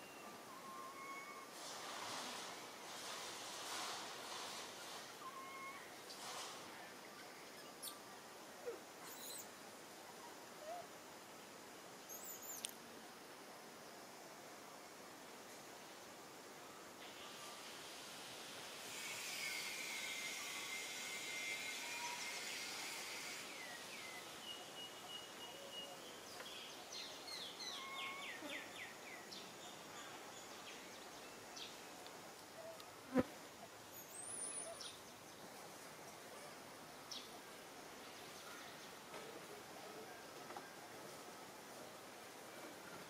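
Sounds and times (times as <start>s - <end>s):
high insect drone: 17.1s - 25.4s.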